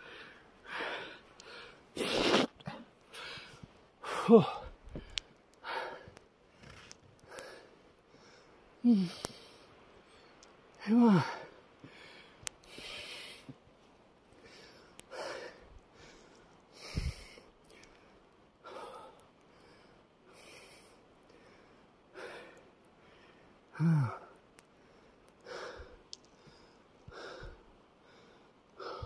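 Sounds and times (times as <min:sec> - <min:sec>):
man breathing heavily: 0:00.0 - 0:10.3, 0:10.9 - 0:13.6, 0:14.4 - 0:29.0
man groaning: 0:04.1 - 0:04.7, 0:23.8 - 0:24.3.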